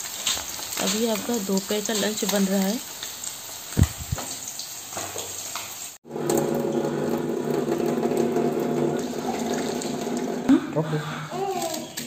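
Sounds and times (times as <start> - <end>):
fish frying in oil: 0.0 - 10.0
tap water running into steel sink: 3.7 - 10.5.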